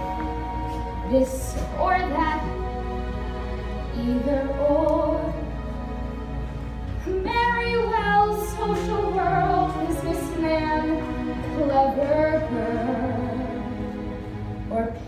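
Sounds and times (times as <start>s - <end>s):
woman singing with vibrato: 0.0s - 2.9s, 7.0s - 14.0s.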